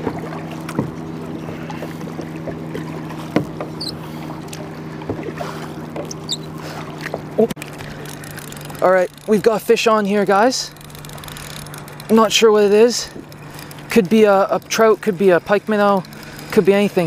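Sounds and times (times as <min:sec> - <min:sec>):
paddle knocking on plastic hull: 0:00.0 - 0:01.0, 0:02.4 - 0:03.8
paddle dipping into water: 0:00.0 - 0:17.0
steady low hum: 0:00.0 - 0:17.0
water lapping: 0:00.0 - 0:17.0.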